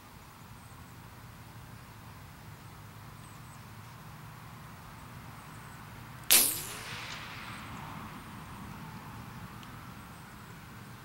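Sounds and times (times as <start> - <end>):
bullet ricochet whine: 6.3 - 7.8
suppressed gunshot: 6.3 - 7.8.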